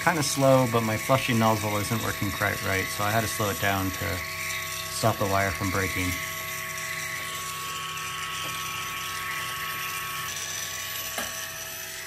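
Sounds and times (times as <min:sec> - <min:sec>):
machine mechanical hum: 0:00.0 - 0:12.0.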